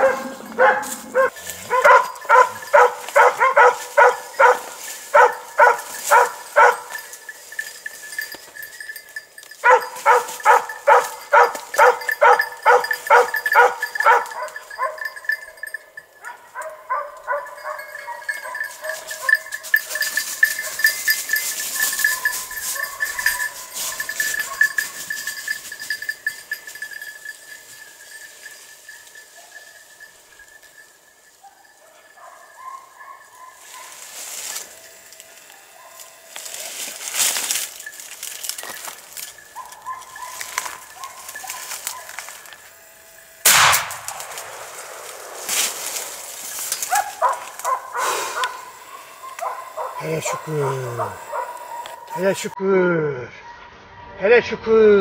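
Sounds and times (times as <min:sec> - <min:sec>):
dogs barking: 0:00.0 - 0:07.7, 0:09.6 - 0:25.5, 0:31.4 - 0:36.3, 0:39.2 - 0:42.6, 0:44.2 - 0:52.6.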